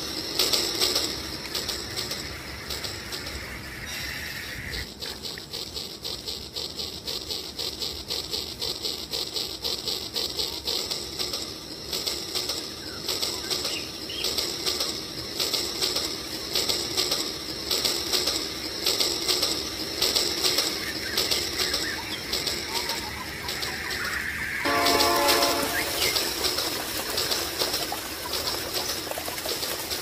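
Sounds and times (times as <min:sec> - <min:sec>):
toy train fluttering clatter: 0:00.0 - 0:30.0.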